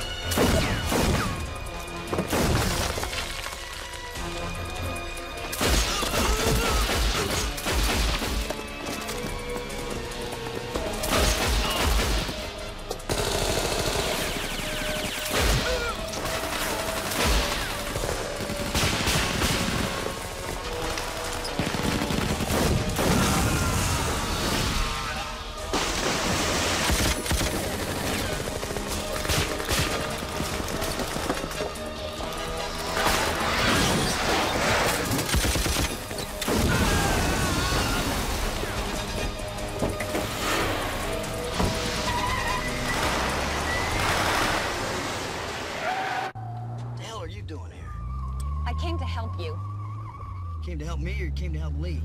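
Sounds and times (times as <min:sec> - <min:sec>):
film music score: 0:00.0 - 0:52.0
rapid gunfire: 0:05.6 - 0:08.5, 0:11.0 - 0:24.8, 0:25.7 - 0:31.6, 0:33.0 - 0:37.9.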